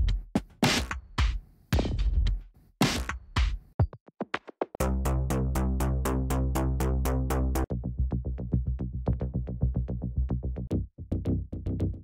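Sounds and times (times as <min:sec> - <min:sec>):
electronic cinematic music loops: 0:04.8 - 0:09.9.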